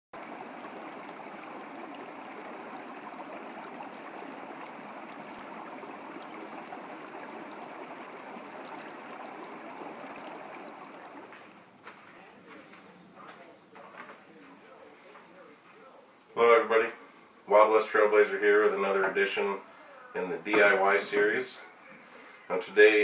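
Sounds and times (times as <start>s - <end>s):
stream water rushing: 0.2s - 11.7s.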